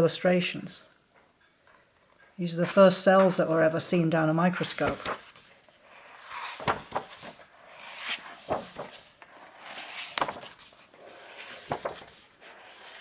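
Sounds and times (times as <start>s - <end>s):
book pages turning: 4.6s - 13.0s.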